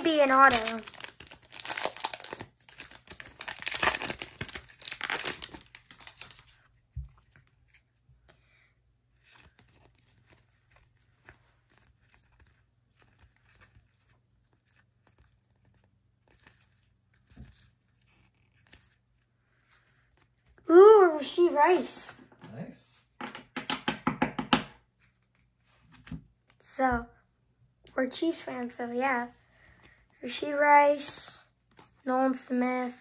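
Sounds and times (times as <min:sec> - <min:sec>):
foil wrapper crinkling: 0:00.0 - 0:06.6
cards being handled: 0:00.0 - 0:08.0, 0:09.1 - 0:20.6.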